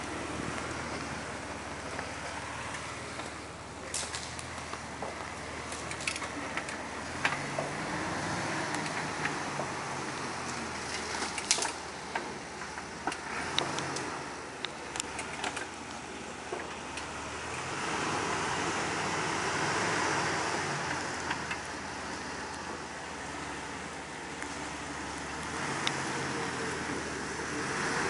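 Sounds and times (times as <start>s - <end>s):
car engine at low revs: 0.0s - 28.0s.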